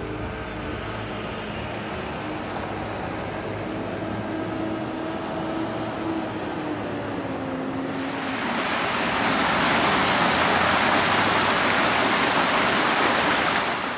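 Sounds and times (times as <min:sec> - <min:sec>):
vehicle engine humming: 0:00.0 - 0:13.7
creek rushing over stones: 0:07.9 - 0:13.9.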